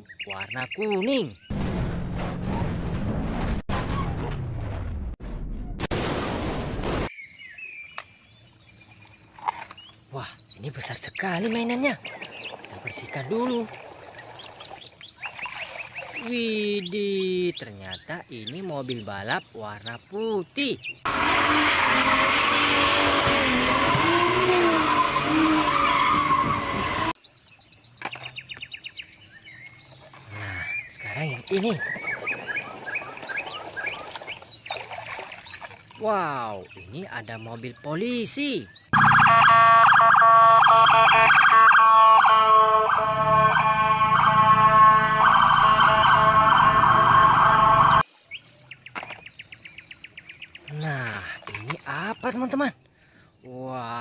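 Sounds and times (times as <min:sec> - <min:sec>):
car engine revving: 0:21.1 - 0:27.2
tyres squealing: 0:21.1 - 0:27.2
police siren warbling: 0:39.0 - 0:48.0.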